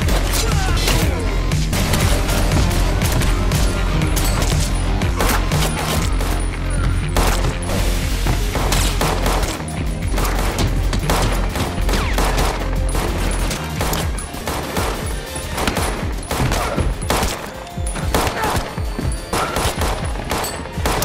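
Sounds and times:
rapid gunshots: 0:00.0 - 0:06.4, 0:07.2 - 0:07.7, 0:08.4 - 0:21.0.

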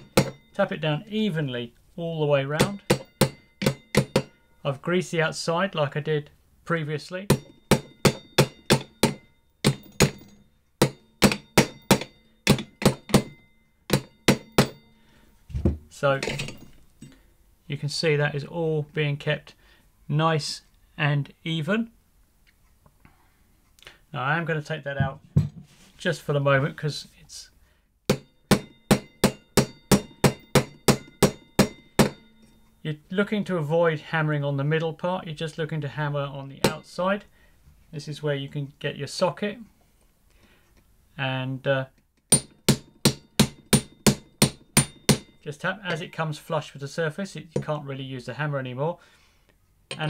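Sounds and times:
hammer tapping metal bearing: 0:00.0 - 0:00.6, 0:02.6 - 0:04.5, 0:07.3 - 0:15.0, 0:28.1 - 0:32.8, 0:42.3 - 0:46.0.

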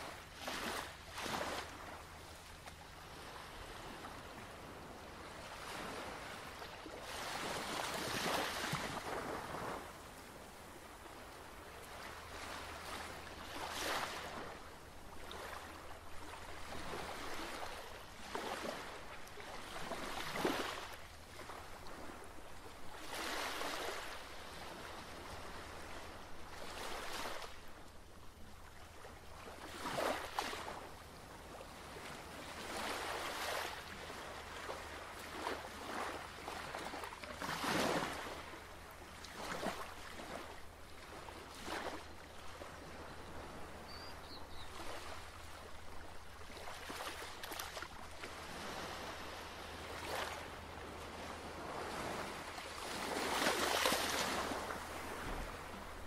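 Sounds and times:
surf washing in: 0:44.8 - 0:56.0.

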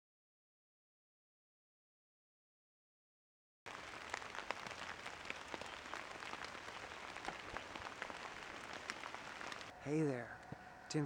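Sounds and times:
rain falling on leaves: 0:03.7 - 0:09.7.

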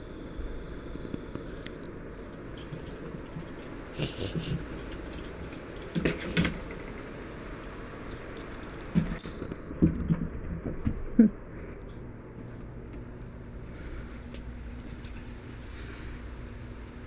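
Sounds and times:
light high jingling: 0:02.0 - 0:08.4.

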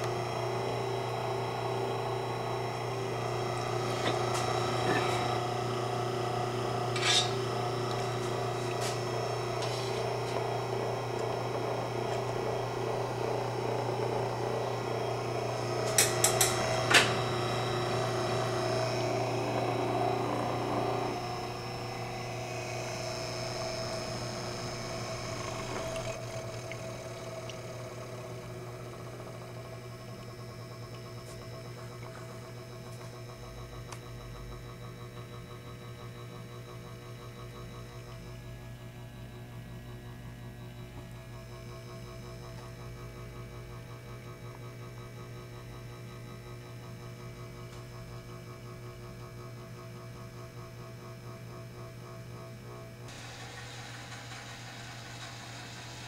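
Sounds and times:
mixer motor humming and whining: 0:00.0 - 0:56.0.

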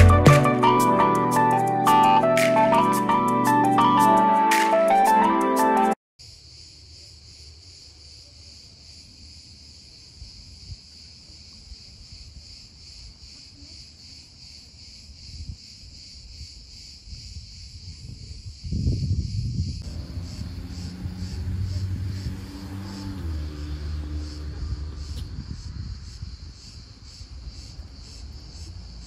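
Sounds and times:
cicadas buzzing: 0:06.2 - 0:29.0
wind buffeting microphone: 0:16.2 - 0:23.6, 0:24.2 - 0:27.8.

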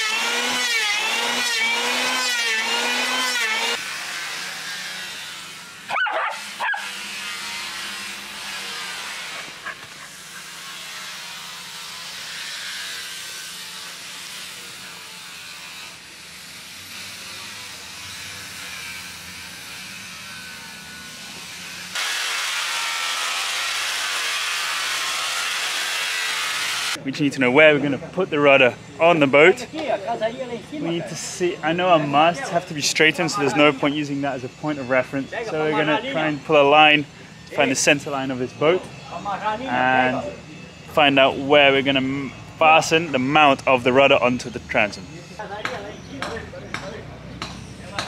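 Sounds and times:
electric planer whining: 0:00.0 - 0:27.0
grinder sanding wood: 0:00.0 - 0:27.0
dog barking: 0:05.9 - 0:06.9.

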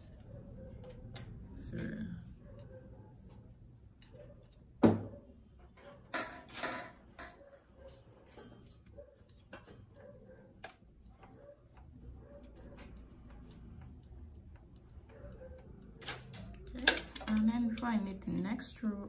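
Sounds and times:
knitting machine needles clicking: 0:06.3 - 0:19.0.

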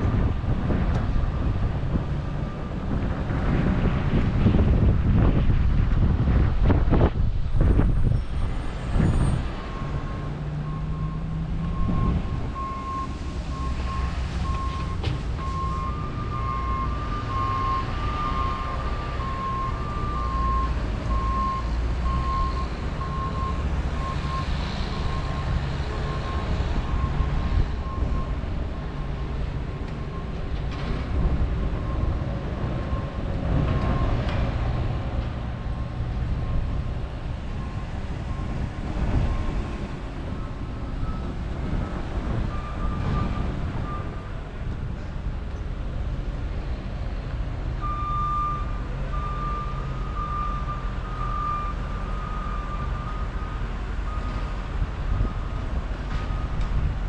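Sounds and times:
construction vehicle engine: 0:00.0 - 0:57.0
reversing alarm beeping: 0:09.7 - 0:28.4, 0:47.8 - 0:55.6.

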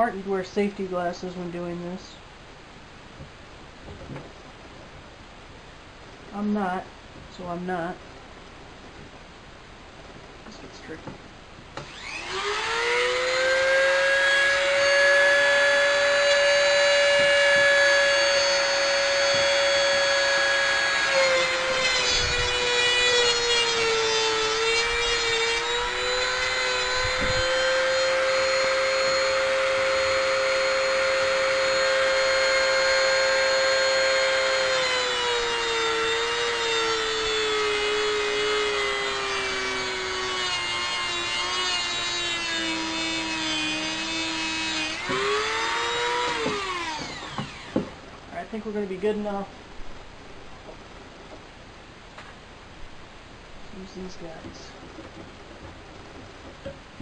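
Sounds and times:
rotary tool grinding whine: 0:11.8 - 0:48.0.

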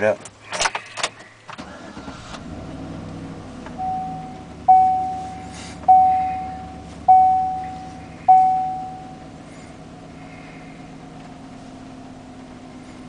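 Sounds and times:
car engine starting and idling: 0:00.0 - 0:13.0
dashboard warning chime dinging: 0:03.7 - 0:09.4.

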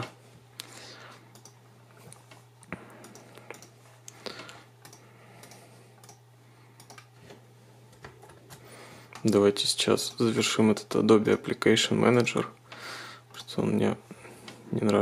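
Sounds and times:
steady low hum: 0:00.0 - 0:15.0
computer mouse clicks: 0:01.3 - 0:01.6, 0:03.0 - 0:03.8, 0:04.8 - 0:06.2, 0:06.8 - 0:07.1.

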